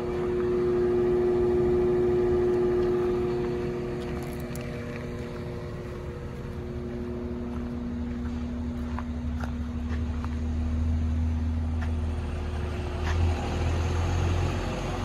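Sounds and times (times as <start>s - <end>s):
wheel loader engine idling: 0.0s - 15.0s.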